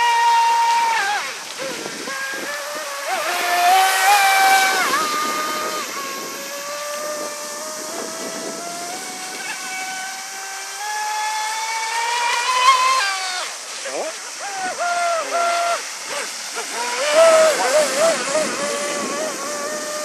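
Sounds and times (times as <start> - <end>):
electric motor whining: 0.0 - 20.0.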